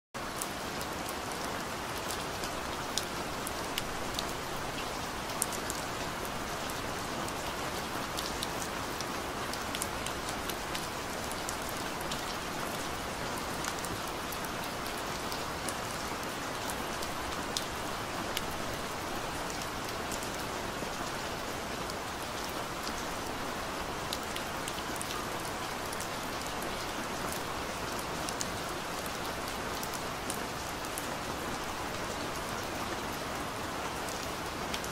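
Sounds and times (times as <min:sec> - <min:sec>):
steady rain hiss: 0:00.2 - 0:34.9.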